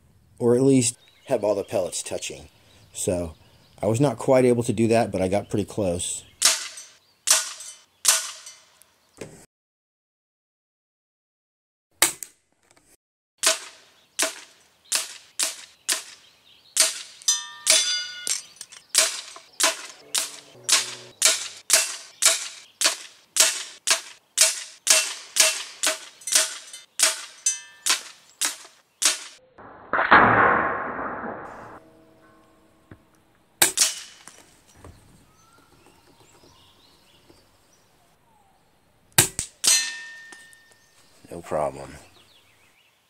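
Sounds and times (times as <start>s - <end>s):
air rifle shots: 18.9s - 31.8s
rushing noise: 29.6s - 31.8s.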